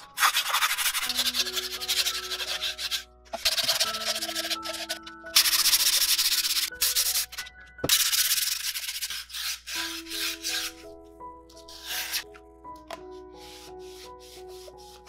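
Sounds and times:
sandpaper rubbing on wood: 0.2s - 10.8s, 11.7s - 12.2s.

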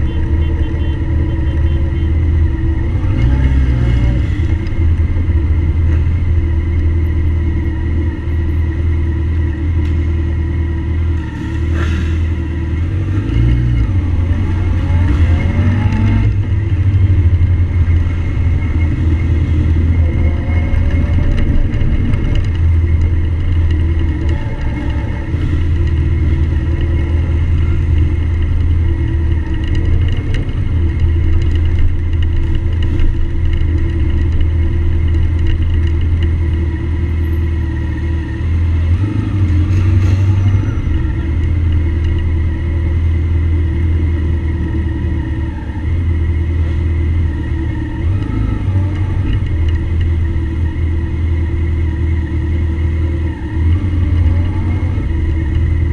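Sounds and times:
motorcycle engine running: 0.0s - 11.2s, 12.2s - 55.9s.

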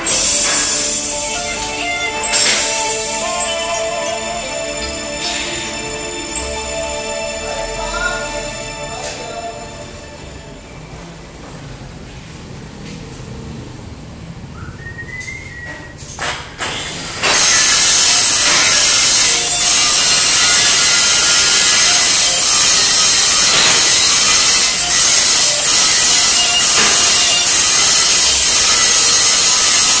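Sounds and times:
power tool grinding metal: 0.0s - 9.2s, 16.7s - 30.0s
workshop background noise: 0.0s - 30.0s.

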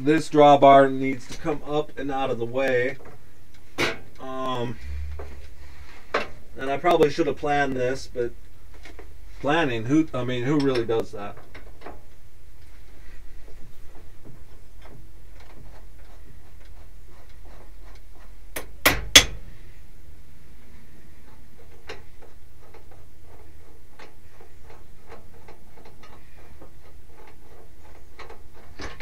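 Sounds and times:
sharp metal knocks: 18.6s - 19.4s.

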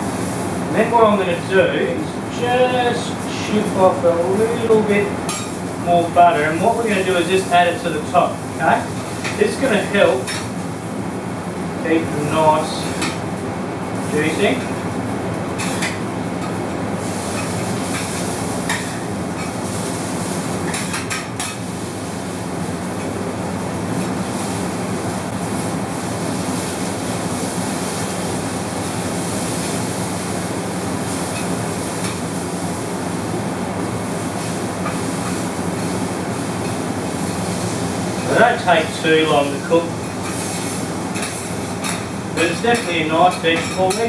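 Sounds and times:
vegetables sizzling on a griddle: 0.0s - 0.6s, 1.8s - 11.3s, 11.9s - 44.0s.

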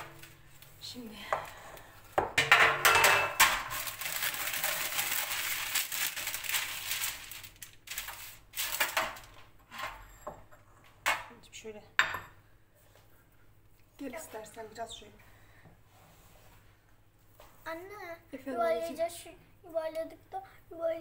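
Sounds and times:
baking paper crinkling: 3.3s - 9.6s.

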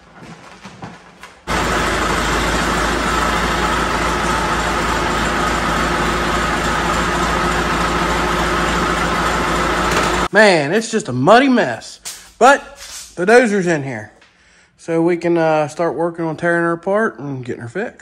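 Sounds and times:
dozer engine running: 1.5s - 10.3s.

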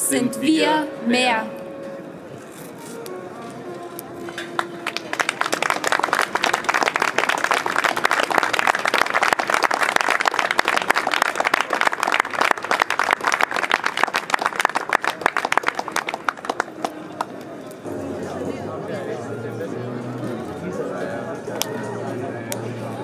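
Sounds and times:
audience applauding: 4.3s - 17.4s.

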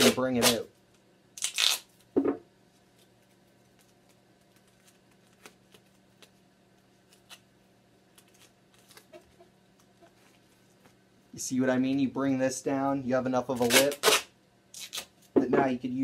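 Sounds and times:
duct tape tearing: 0.0s - 0.7s, 1.4s - 2.0s, 13.5s - 15.1s.

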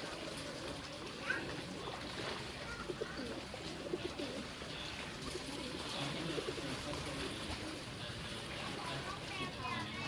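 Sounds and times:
pigeons cooing: 0.0s - 8.0s.

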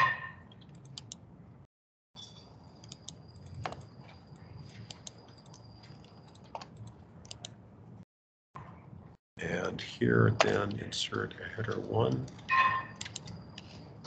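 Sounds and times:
computer mouse and keyboard clicks: 0.5s - 1.2s, 2.8s - 3.9s, 4.7s - 7.6s, 13.0s - 13.8s
low steady background hum: 8.7s - 14.0s.

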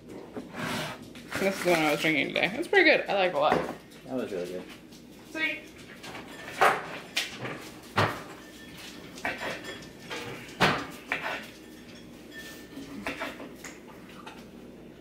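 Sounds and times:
dishes and utensils clinking: 5.6s - 14.5s.

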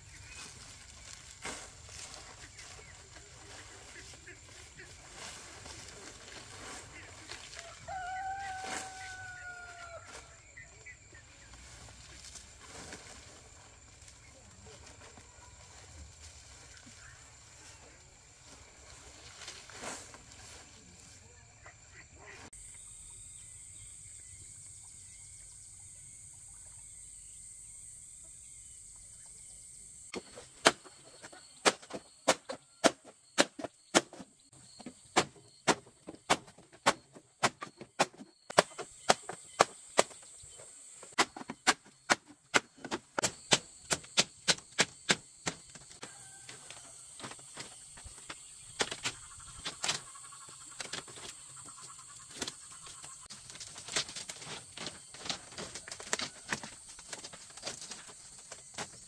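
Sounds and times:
machete chopping bamboo: 31.6s - 34.2s, 35.2s - 40.2s, 41.2s - 45.8s.

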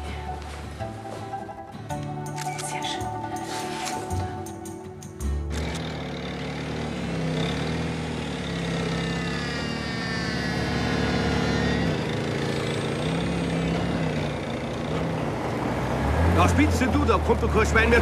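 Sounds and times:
forklift diesel engine running: 3.1s - 18.0s.

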